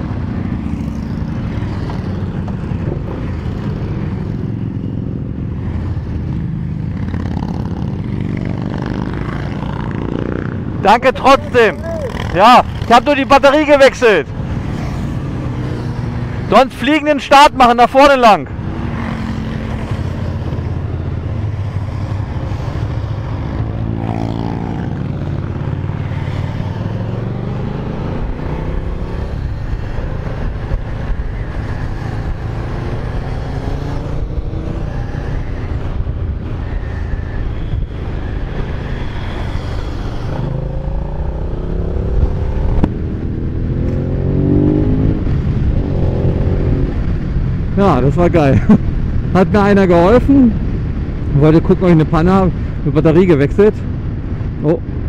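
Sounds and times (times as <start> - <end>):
riding wind and road noise: 0.0 - 55.0
motorcycle engine accelerating: 38.9 - 47.5.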